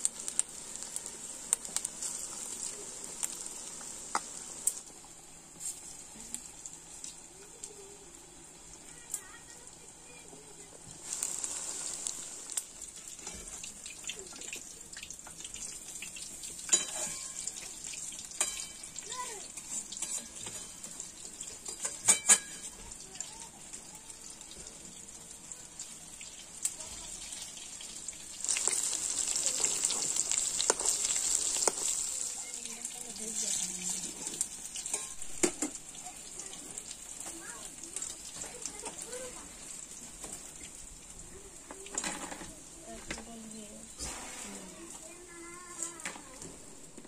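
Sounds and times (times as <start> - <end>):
food deep-frying in oil: 0.0 - 47.0
metal spatula clinking on pan: 16.7 - 17.7, 18.4 - 19.0, 19.6 - 20.9, 21.6 - 22.7, 34.9 - 35.2.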